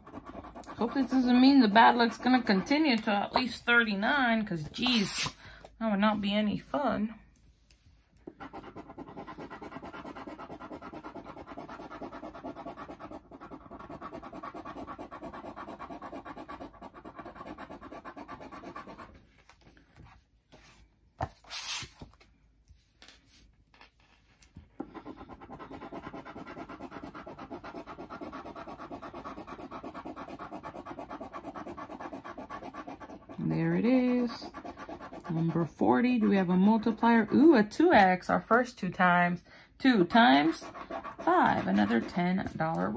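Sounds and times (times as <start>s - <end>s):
scratching lottery ticket coating: 0.0s - 3.1s, 8.4s - 19.0s, 25.2s - 37.5s, 40.2s - 42.2s.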